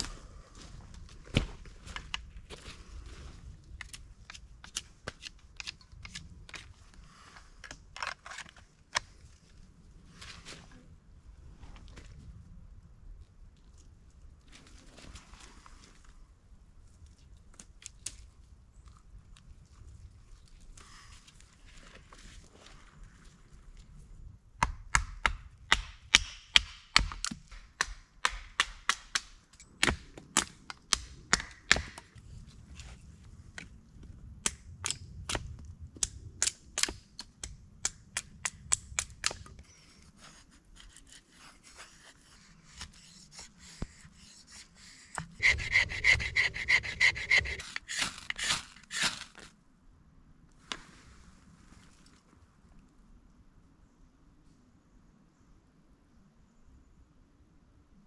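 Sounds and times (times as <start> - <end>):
rubbing strokes on wood: 40.2 - 49.2.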